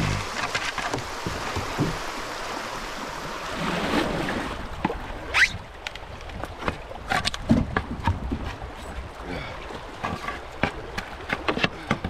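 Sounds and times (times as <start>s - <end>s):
creek water rushing: 0.0s - 7.1s
water splashes: 0.0s - 12.0s.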